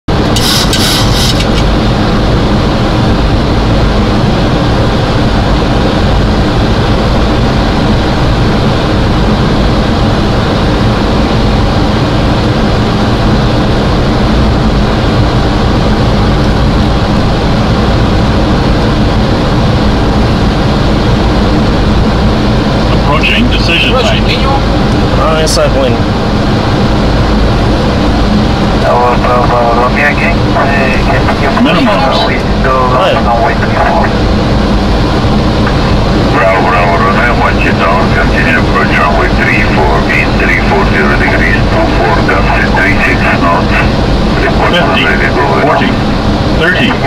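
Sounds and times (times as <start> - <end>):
airflow and engine rumble in cockpit: 0.0 - 47.0
brief high hiss: 0.3 - 1.5.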